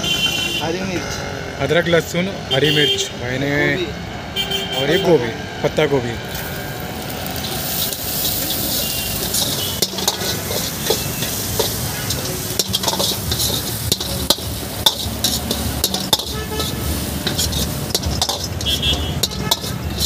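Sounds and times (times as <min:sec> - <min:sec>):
food sizzling: 0:06.2 - 0:20.0
ladle scraping a wok: 0:06.3 - 0:20.0.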